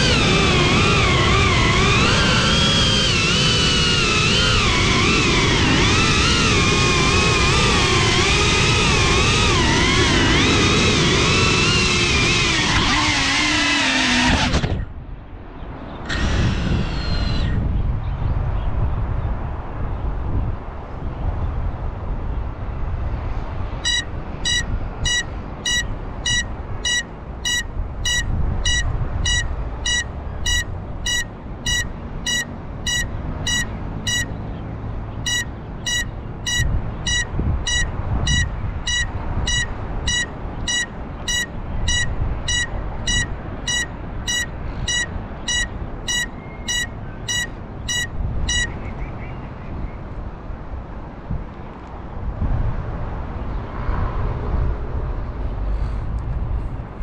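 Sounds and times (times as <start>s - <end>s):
wind rumble on microphone: 0.0s - 57.0s
high short buzzer beeps: 23.8s - 34.4s, 35.2s - 48.8s.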